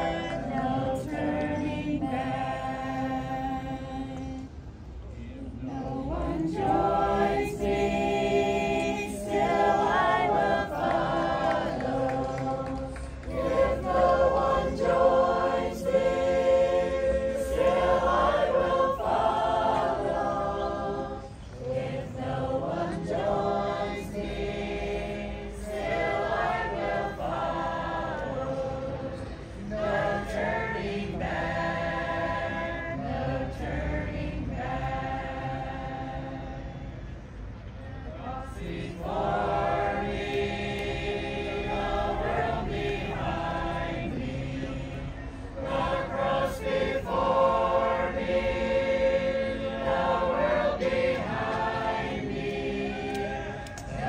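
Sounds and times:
choir singing long notes: 0.0 - 54.0.

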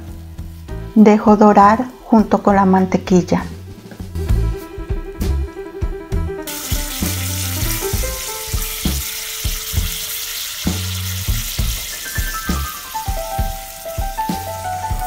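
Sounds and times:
background music with drum beat: 0.0 - 1.0, 3.4 - 15.0
meat sizzling in butter: 6.5 - 15.0.

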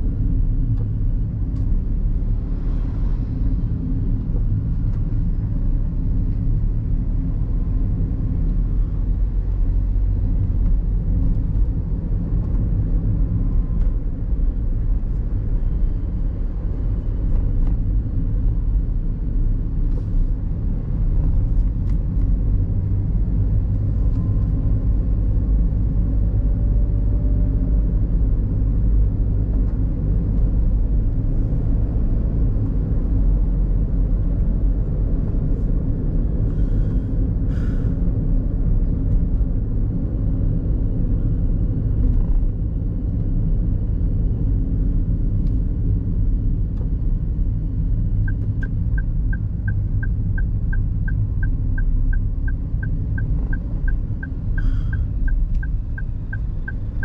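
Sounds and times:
road and engine rumble in car: 0.0 - 57.0
turn signal ticking: 48.0 - 57.0.

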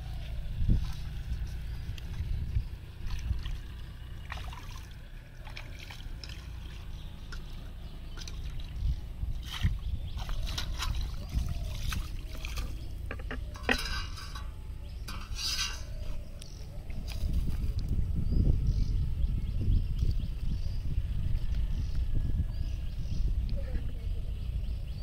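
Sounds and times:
pond water splashing and trickling: 0.0 - 18.0.

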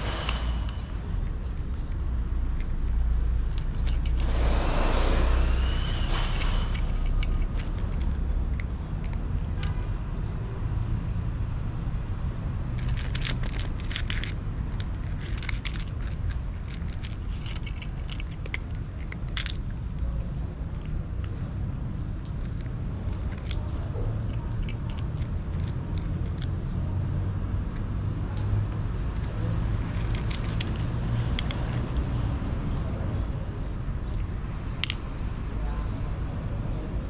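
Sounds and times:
low rumble: 0.0 - 9.6
cat crunching dry kibble: 0.0 - 10.5, 12.6 - 27.0, 28.4 - 32.8.

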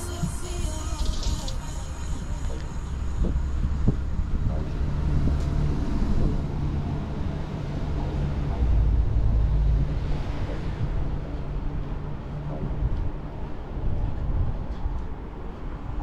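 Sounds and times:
steady low hum: 0.0 - 16.0
wind rumble on microphone: 0.0 - 16.0.

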